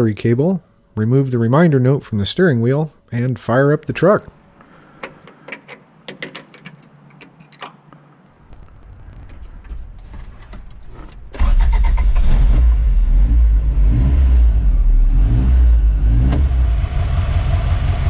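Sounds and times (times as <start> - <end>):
engine starter clicking: 10.4 - 12.6
car engine revving and idling: 11.5 - 18.0.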